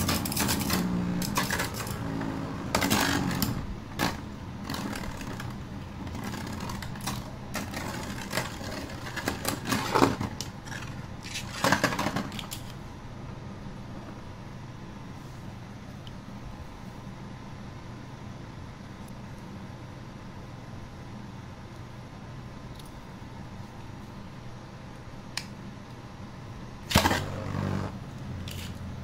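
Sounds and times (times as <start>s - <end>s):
spinning tops whirring: 0.0s - 12.6s.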